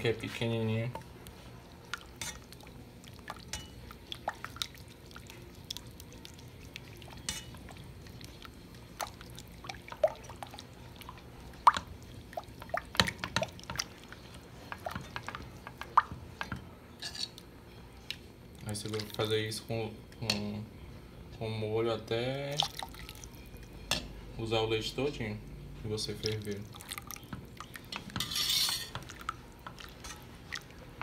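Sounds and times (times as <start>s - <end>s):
spatula stirring thick sauce: 0.1s - 16.0s, 26.5s - 31.0s.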